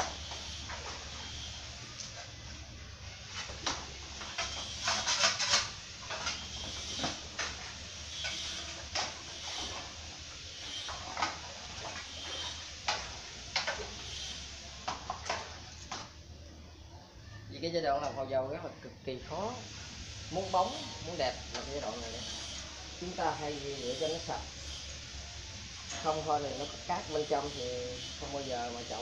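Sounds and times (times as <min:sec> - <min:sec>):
steady low hum: 0:00.0 - 0:29.0
tools and containers clinking: 0:03.4 - 0:10.0.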